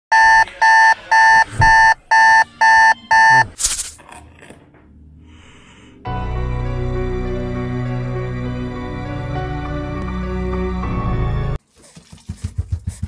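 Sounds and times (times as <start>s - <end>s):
two-tone alarm beeping: 0.1s - 3.6s
music: 5.9s - 11.6s.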